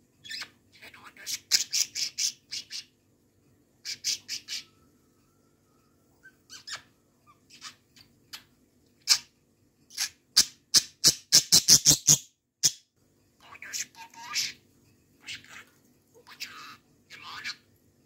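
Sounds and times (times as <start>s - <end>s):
budgerigar chirping and squawking: 0.2s - 2.9s, 3.8s - 4.7s, 6.2s - 9.3s, 9.9s - 12.8s, 13.4s - 14.6s.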